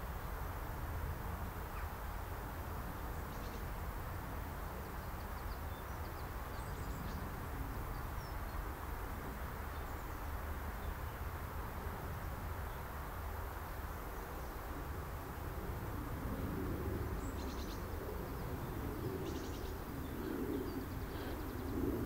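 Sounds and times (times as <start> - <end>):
faint bird chirps: 17.2 - 21.9.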